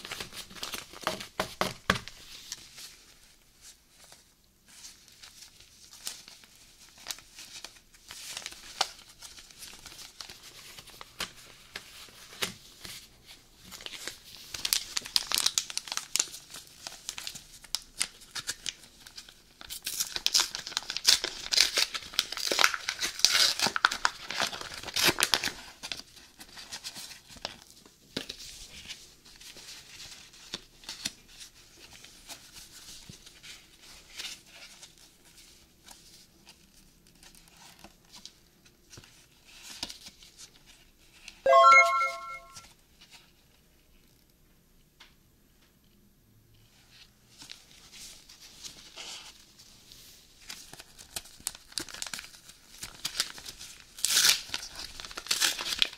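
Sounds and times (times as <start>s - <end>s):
wrappers crinkling: 13.8s - 26.0s, 50.4s - 55.9s
pack being torn open: 19.6s - 25.5s, 50.7s - 55.9s.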